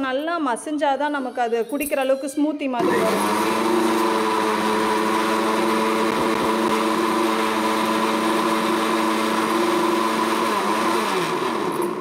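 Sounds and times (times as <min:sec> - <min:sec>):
mixer grinder motor running: 0:02.8 - 0:12.0.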